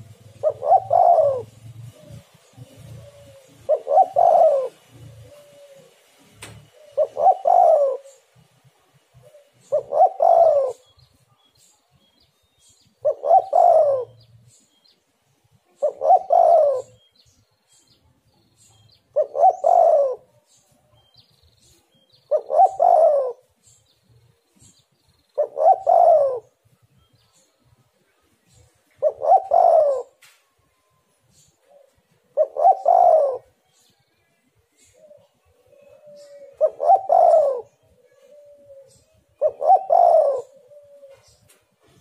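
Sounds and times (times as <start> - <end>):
dove cooing: 0.0 - 11.0, 12.8 - 14.6, 15.7 - 17.2, 19.0 - 20.6, 22.1 - 23.8, 24.6 - 26.7, 28.4 - 30.2, 31.3 - 34.0, 34.7 - 42.0.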